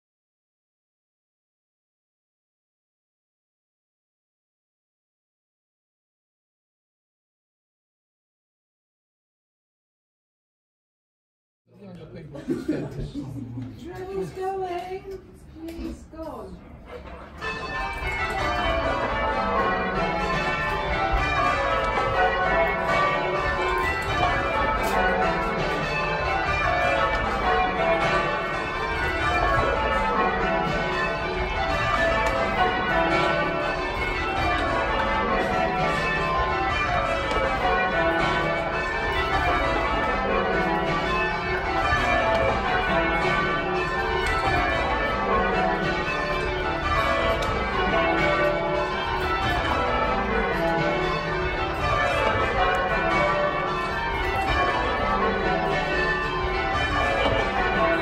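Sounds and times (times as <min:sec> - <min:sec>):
church bells ringing: 0:13.8 - 0:58.0.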